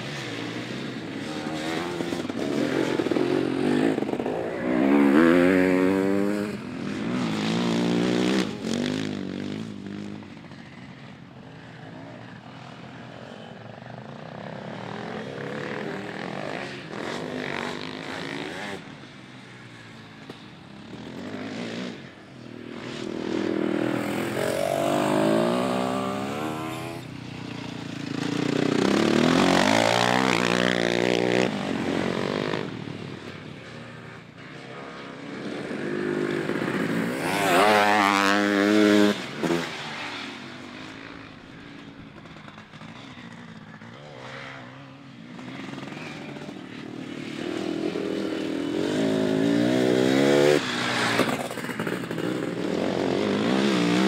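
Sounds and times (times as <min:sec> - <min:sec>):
motorcycle engines revving past: 0:00.0 - 0:54.0.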